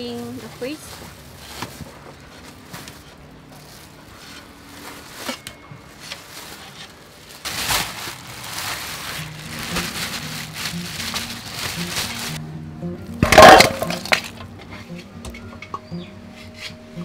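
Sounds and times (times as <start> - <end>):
faint background music: 0.0 - 17.0
plastic bag crinkling: 0.4 - 12.4.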